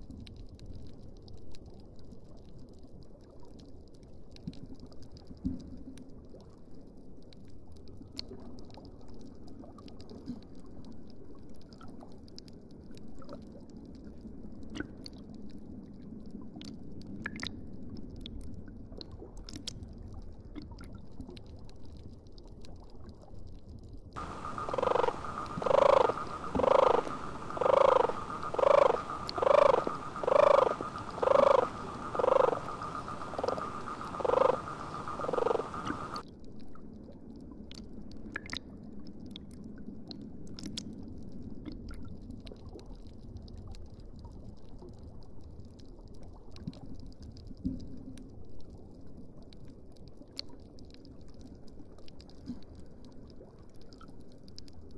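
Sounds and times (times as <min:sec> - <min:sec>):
underwater ambience: 0:00.0 - 0:54.9
animal call: 0:24.2 - 0:36.2
steady hum: 0:24.2 - 0:36.2.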